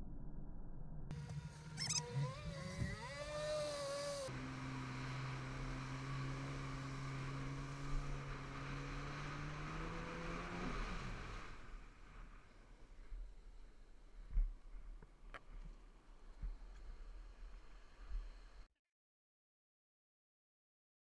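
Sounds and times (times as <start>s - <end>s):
jet ski engine running: 1.1s - 13.6s.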